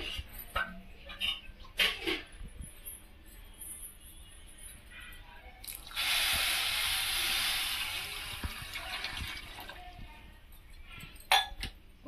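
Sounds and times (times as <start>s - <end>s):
water pouring into a pot: 5.6s - 10.0s.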